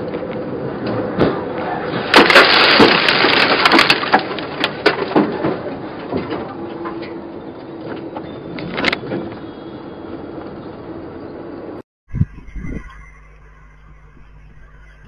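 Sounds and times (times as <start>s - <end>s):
road noise: 0.0s - 11.8s
vehicle crash crunch: 0.1s - 9.4s
debris cracking and clattering: 1.9s - 7.2s.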